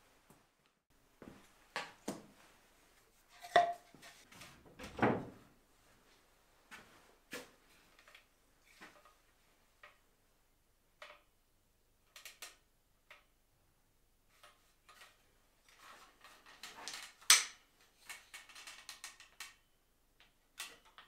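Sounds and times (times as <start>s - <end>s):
wood knocks and clatters: 4.6s - 5.4s.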